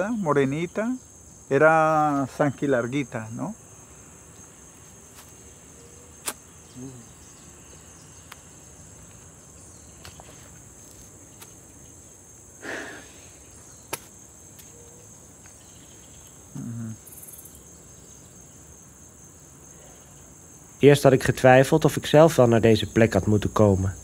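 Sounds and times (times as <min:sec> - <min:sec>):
high-pitched insect chorus: 0:00.0 - 0:24.0.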